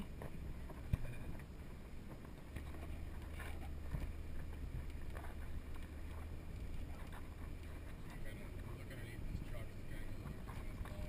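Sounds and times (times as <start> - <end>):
vehicle engine rumble: 0.0 - 11.0
wind noise on microphone: 0.0 - 11.0.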